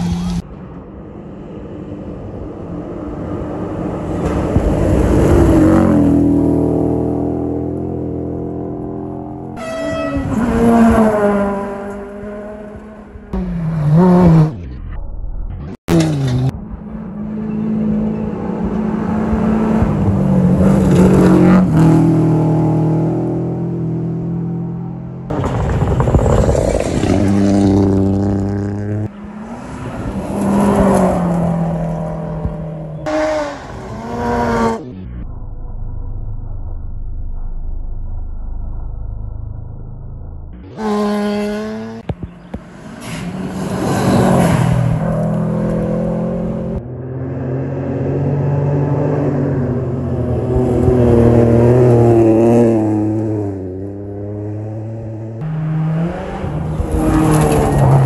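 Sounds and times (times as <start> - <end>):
rally car engines passing: 0.0 - 14.5, 15.9 - 35.0, 40.7 - 58.0
low rumble: 14.5 - 15.8, 34.6 - 40.8.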